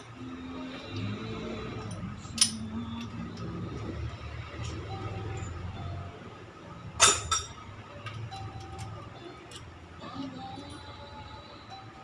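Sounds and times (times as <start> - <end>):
low background hum: 0.0 - 12.0
metal parts clinking: 1.8 - 3.2, 7.0 - 7.6.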